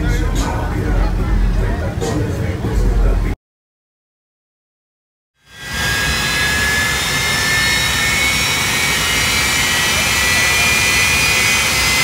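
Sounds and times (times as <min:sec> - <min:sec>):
jet engine rush and whine: 0:05.4 - 0:12.0.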